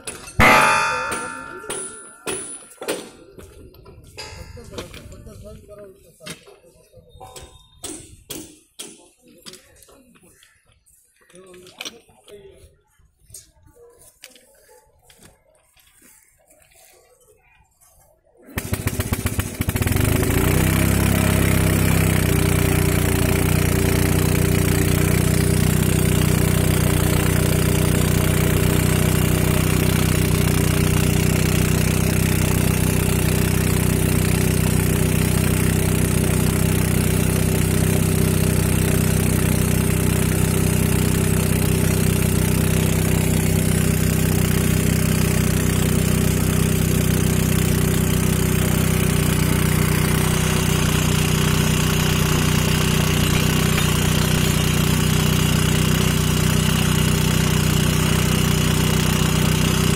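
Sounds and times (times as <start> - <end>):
small engine starting and running: 18.5 - 59.9.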